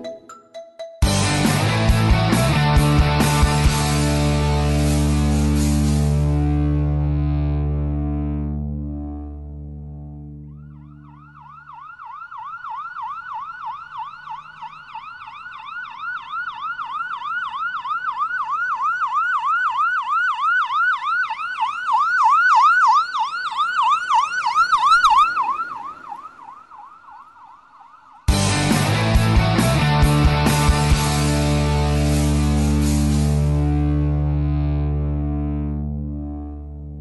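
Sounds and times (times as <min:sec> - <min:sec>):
electronic siren yelping: 0:10.5 - 0:28.9.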